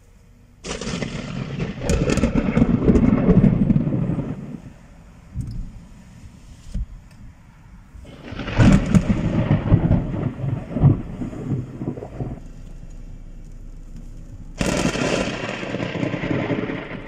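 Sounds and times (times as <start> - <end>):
thunder rumbling: 0.6 - 5.8, 8.0 - 12.4, 14.5 - 17.0.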